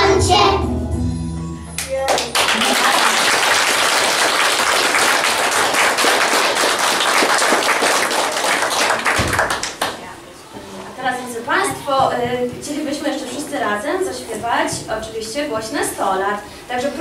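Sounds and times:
children's song: 0:00.0 - 0:01.0
audience applause: 0:02.1 - 0:10.1.

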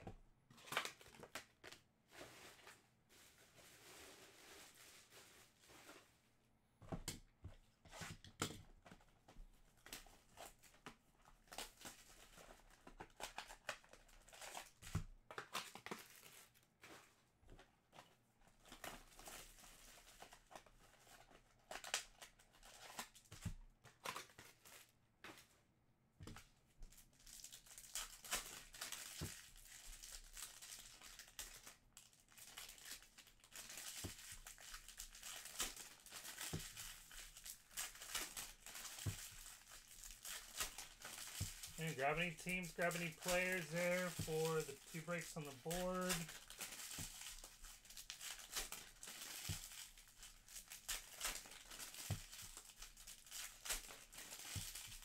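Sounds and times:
card packs tearing: 0:00.5 - 0:01.8, 0:11.5 - 0:16.6, 0:27.3 - 0:55.0
wrappers crinkling: 0:00.6 - 0:06.1, 0:09.8 - 0:17.0, 0:26.9 - 0:55.0.

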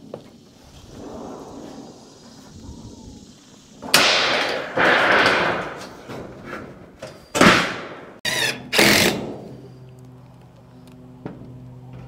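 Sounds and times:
metal roofing sheets banging: 0:03.8 - 0:08.2.

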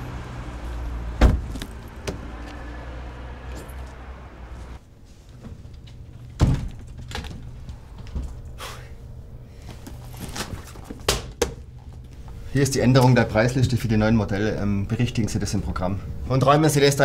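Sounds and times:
low vehicle rumble: 0:00.0 - 0:04.8
car door slamming: 0:01.1 - 0:02.3
loud thump: 0:01.2 - 0:02.2.

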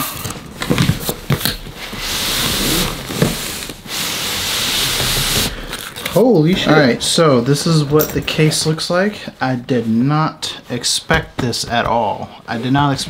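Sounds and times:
fabric case scraping cardboard: 0:00.6 - 0:05.6.

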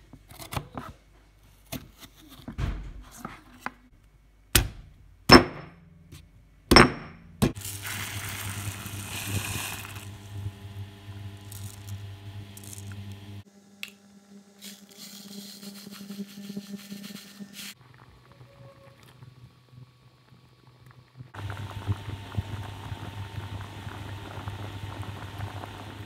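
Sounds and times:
pot of rice boiling: 0:07.6 - 0:13.5, 0:17.8 - 0:26.0.

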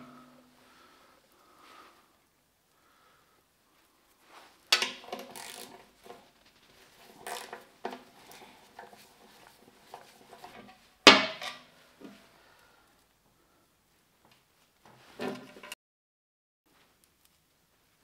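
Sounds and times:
hand tools clanking on sheet metal: 0:04.7 - 0:05.9, 0:07.1 - 0:11.7.

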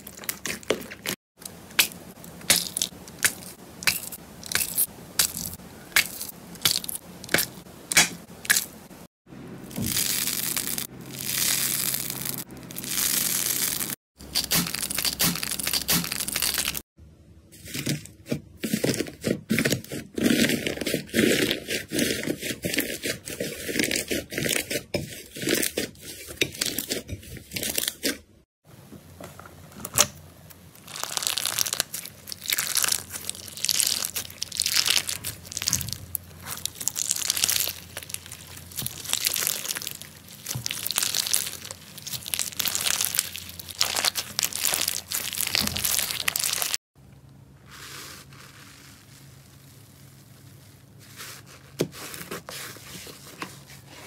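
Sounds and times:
slime crackling and popping: 0:30.8 - 0:46.8.

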